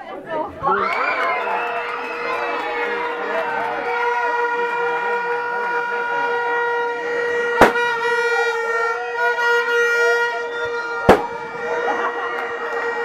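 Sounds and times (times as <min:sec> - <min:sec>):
crowd voices: 0:00.0 - 0:13.0
sharp thumps: 0:07.6 - 0:07.9, 0:11.0 - 0:11.4.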